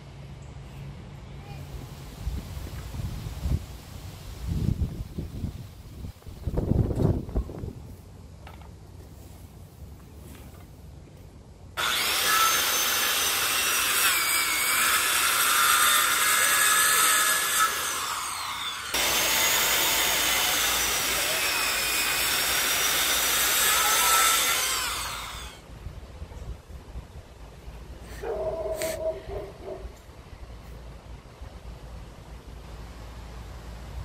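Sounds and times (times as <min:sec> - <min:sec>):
circular saw cutting wood: 0:11.8 - 0:25.6.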